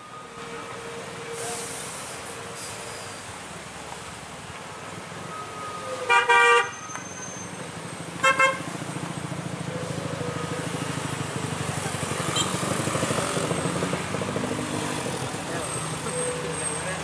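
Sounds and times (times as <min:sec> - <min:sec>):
vehicle horn toots: 0:06.1 - 0:07.2, 0:08.2 - 0:08.7
car and motorcycle engines running: 0:07.5 - 0:17.0.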